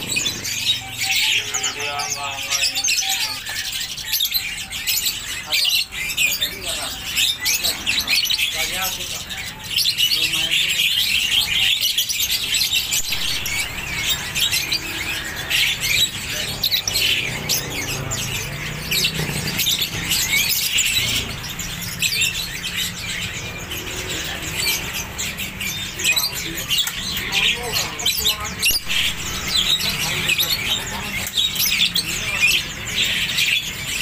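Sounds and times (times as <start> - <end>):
songbirds chirping and twittering: 0.0 - 34.0.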